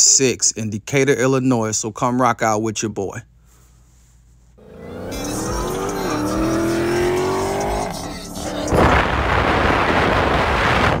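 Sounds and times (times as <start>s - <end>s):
car tires squealing: 4.6s - 9.8s
car engine revving: 4.6s - 11.0s
hissing rush of burnout: 4.6s - 11.0s.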